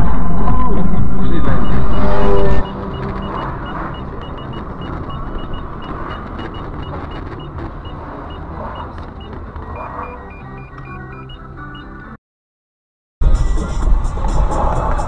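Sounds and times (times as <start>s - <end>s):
vehicle road noise: 0.0s - 12.2s, 13.2s - 15.0s
short high-pitched electronic beeps: 1.0s - 11.9s.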